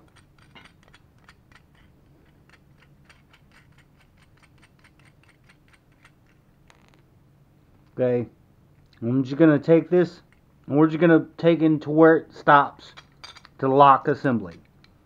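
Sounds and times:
small metal hardware clicking: 0.0s - 6.9s.

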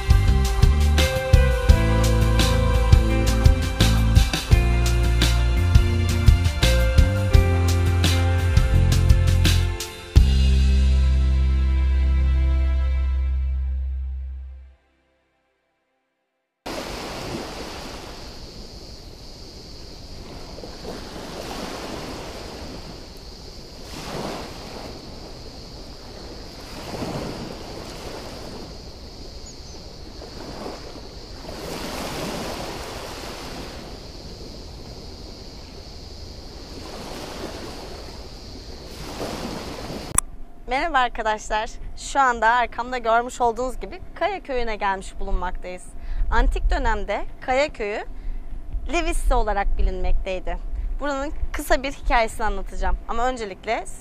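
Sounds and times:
waves washing onto pebbles: 16.7s - 18.6s, 20.0s - 28.9s, 30.0s - 35.6s, 36.5s - 40.2s
steady high-pitched hiss: 16.7s - 54.0s.

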